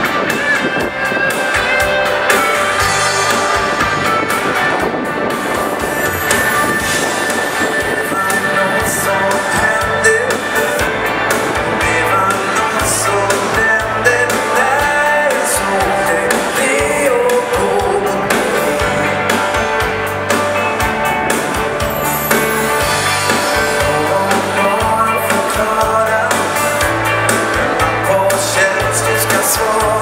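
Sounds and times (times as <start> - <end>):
dance band playing: 0.0 - 30.0
person singing: 6.0 - 19.4, 22.3 - 30.0.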